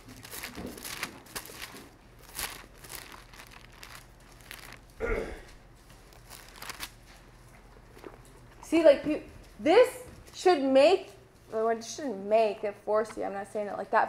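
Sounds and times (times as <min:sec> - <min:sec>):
thin pages rustling: 0:00.0 - 0:05.0, 0:05.8 - 0:07.2.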